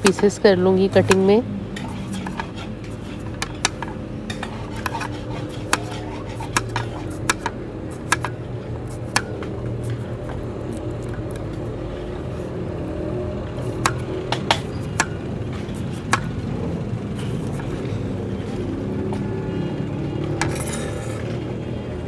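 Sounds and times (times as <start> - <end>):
knife slicing cucumber: 4.4 - 8.3.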